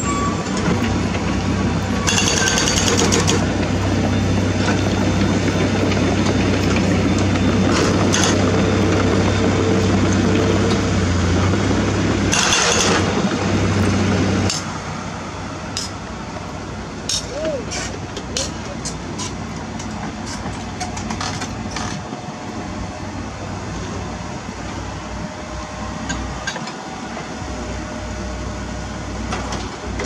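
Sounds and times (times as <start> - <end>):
diesel engine running: 0.0 - 30.0
hydraulic breaker hammering rock: 2.0 - 3.6, 7.7 - 8.6, 12.3 - 13.2.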